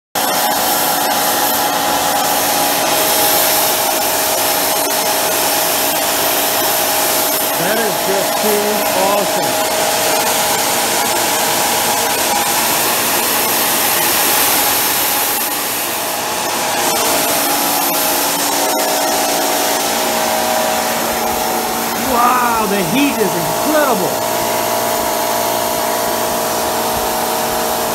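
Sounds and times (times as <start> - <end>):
jet burner rushing hiss: 6.2 - 10.7
steady multi-tone hum: 6.7 - 10.7.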